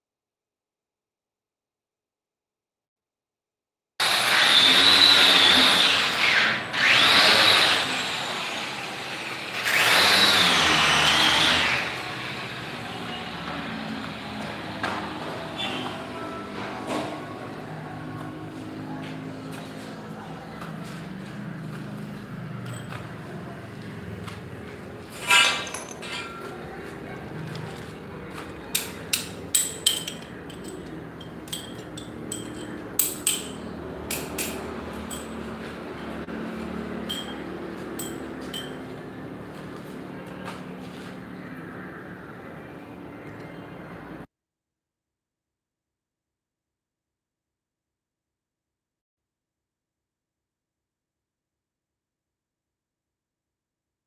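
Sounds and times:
handheld power tool whining: 4.0 - 12.8
high-pitched squeak: 15.5 - 16.6.

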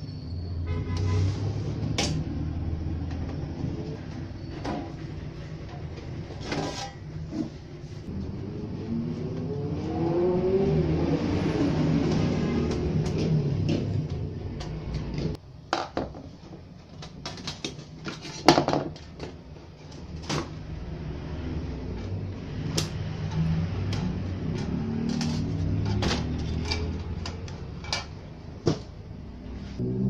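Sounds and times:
metal parts clicking and knocking: 22.8 - 28.2.

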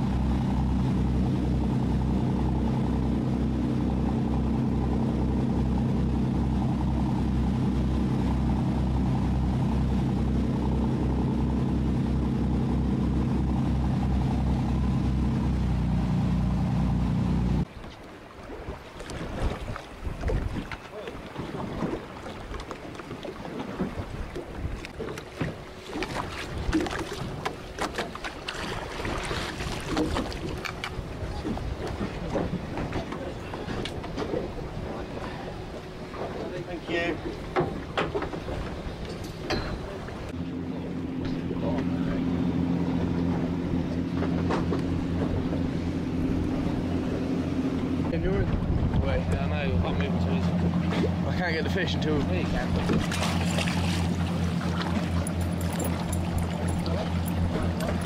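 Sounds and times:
water lapping and splashing: 0.0 - 16.6, 17.6 - 58.0
boat engine humming: 0.0 - 58.0
sea noise: 0.0 - 58.0
wind: 0.0 - 58.0
wind buffeting microphone: 18.6 - 22.6, 43.0 - 51.2
fish splashing in landing net: 53.0 - 54.9.

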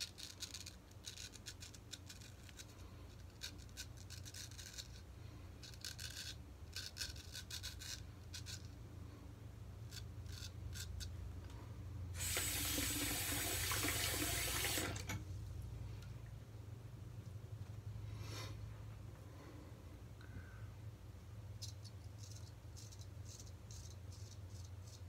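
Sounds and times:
straight razor scraping stubble: 0.0 - 8.8, 9.8 - 11.2
water running into sink: 12.2 - 15.2.

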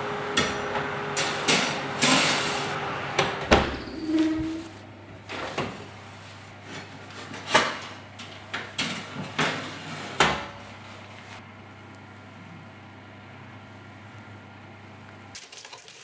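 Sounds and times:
oven door opening: 0.4 - 6.1, 6.8 - 11.1.

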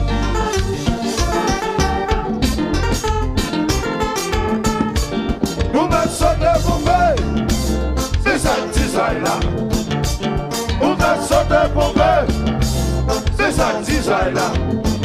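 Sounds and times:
lead melody: 0.0 - 8.2
bass and drum groove: 0.0 - 15.0
live band playing: 0.0 - 15.0.

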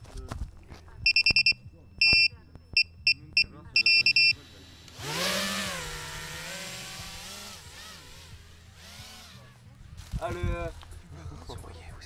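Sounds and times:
high electronic beeps: 1.1 - 4.4
drone motors whining: 4.0 - 9.7.

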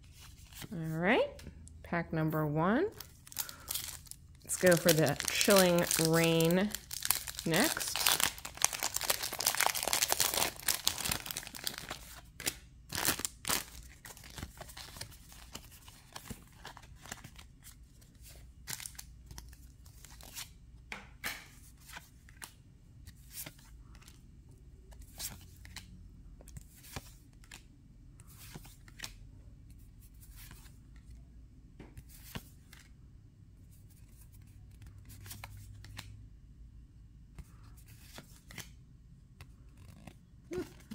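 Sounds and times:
foil wrapper crinkling: 3.2 - 12.1
cards sliding and flicking: 34.8 - 36.1, 37.9 - 38.7.

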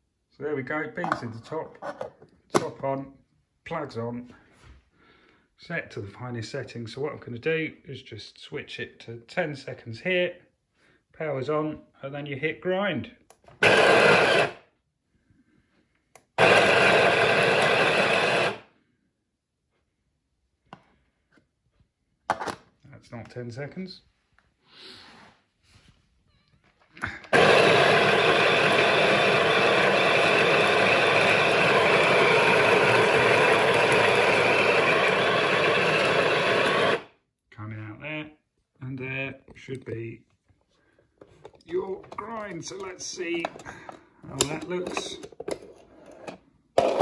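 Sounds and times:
electric coffee grinder grinding: 13.6 - 14.6, 16.4 - 18.6, 27.0 - 37.1.

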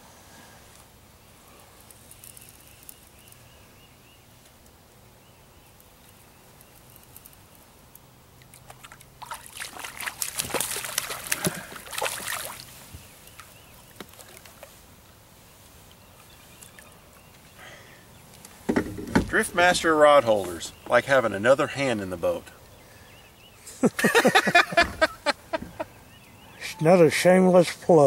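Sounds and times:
fish thrashing and splashing: 8.5 - 12.8.

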